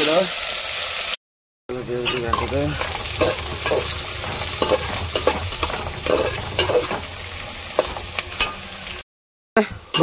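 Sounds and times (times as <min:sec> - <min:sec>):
onions sizzling in hot oil: 0:00.0 - 0:09.0
utensil scraping and knocking pan: 0:01.7 - 0:08.7.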